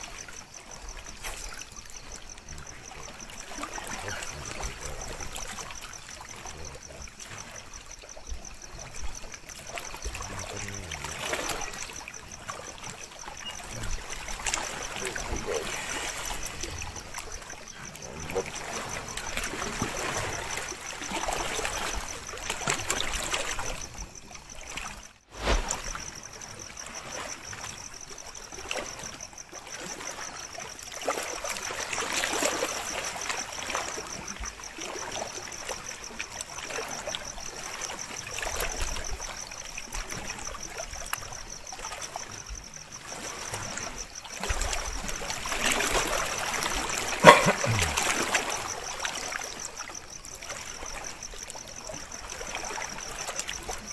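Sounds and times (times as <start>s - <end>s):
water lapping at shore: 0.0s - 53.9s.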